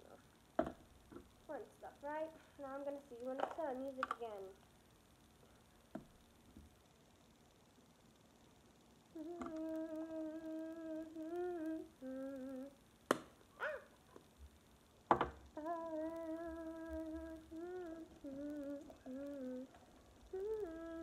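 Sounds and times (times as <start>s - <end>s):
girl humming a tune: 9.1s - 12.8s, 15.6s - 21.0s.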